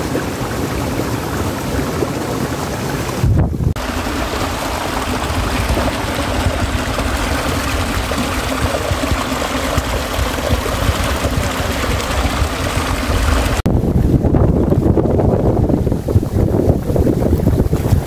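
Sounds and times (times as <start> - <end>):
river water rushing over rocks: 0.0 - 13.6.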